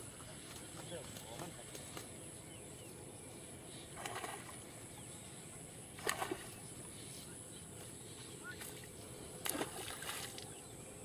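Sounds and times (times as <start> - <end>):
faint outdoor background: 0.0 - 11.0
water splashing: 3.9 - 4.8, 5.9 - 6.7, 8.6 - 10.6.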